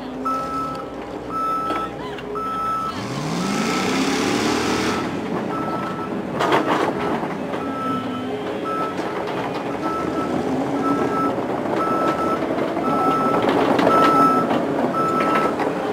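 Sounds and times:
warning alarm beeping: 0.2 - 4.0, 4.8 - 15.6
engine revving: 2.4 - 8.0
clatter of knocks: 5.3 - 7.8.

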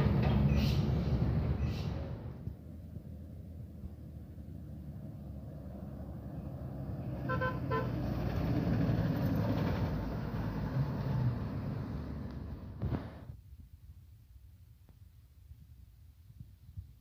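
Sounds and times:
diesel truck engine passing: 0.0 - 13.3.

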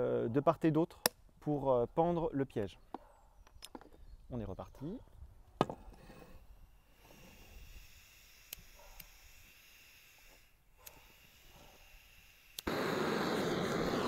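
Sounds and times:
faint gas hiss: 9.8 - 14.0.

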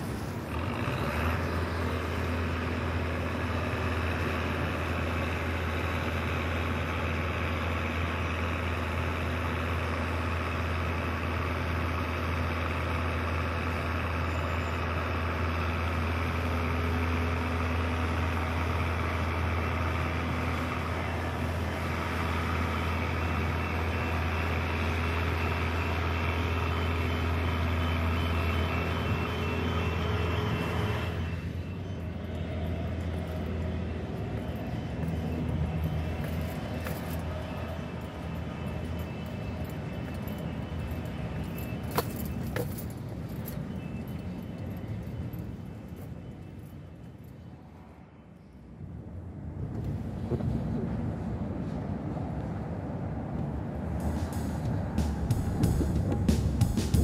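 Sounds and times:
traffic noise: 0.0 - 57.0
vehicle engine rumble: 0.0 - 57.0.

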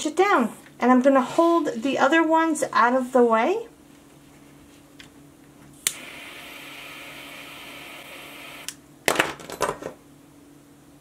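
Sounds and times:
lighter clicking: 5.8 - 6.1
lighter flame hissing: 5.8 - 8.8.

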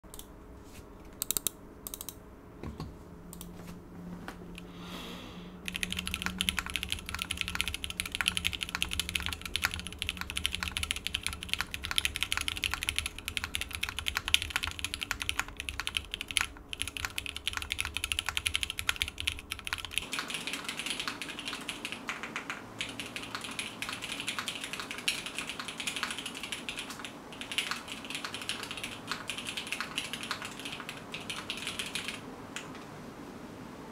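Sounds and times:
mechanical keyboard typing: 1.2 - 2.2, 5.7 - 32.8.

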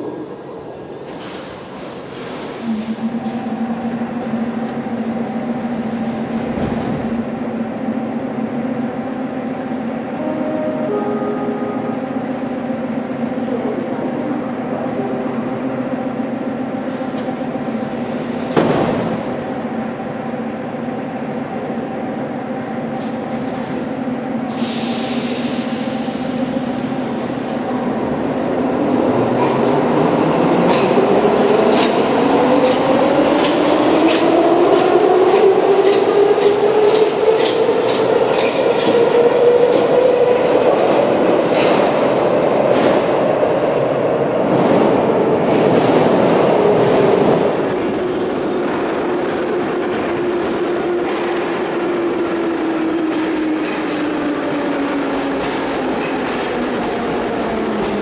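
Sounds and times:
train hum: 0.0 - 58.0
train doors shutting: 0.6 - 7.6, 16.4 - 19.8, 22.8 - 58.0.

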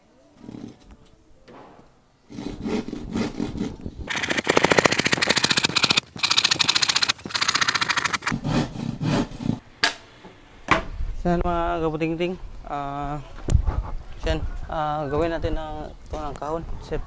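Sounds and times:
hand saw rasping through plywood: 2.3 - 3.7.

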